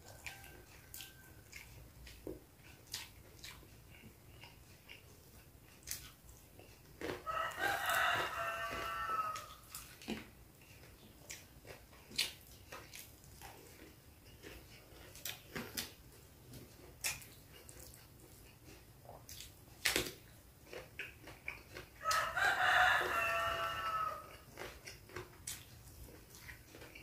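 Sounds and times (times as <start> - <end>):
rooster crowing: 0.0 - 1.6, 7.2 - 9.6, 22.0 - 24.4
food crunching and clicking: 0.0 - 27.0.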